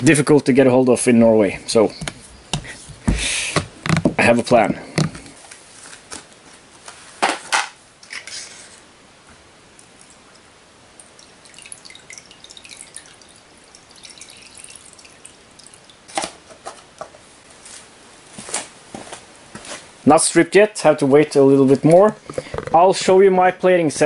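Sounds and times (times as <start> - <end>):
liquid dripping and trickling: 9.8 - 16.2.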